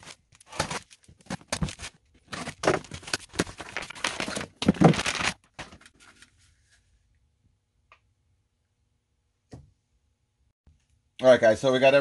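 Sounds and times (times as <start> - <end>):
cardboard and plastic packaging rustling: 0.0 - 6.5.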